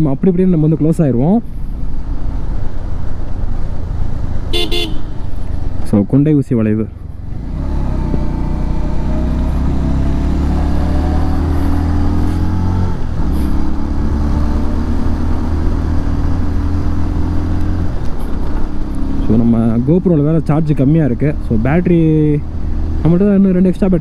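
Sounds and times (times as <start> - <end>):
motorcycle engine revving: 7.0 - 23.2.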